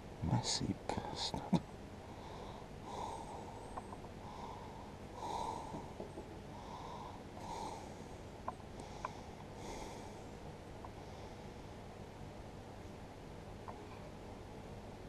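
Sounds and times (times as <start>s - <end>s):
person breathing quietly: 2.0s - 12.0s
faint clicks: 8.4s - 9.5s.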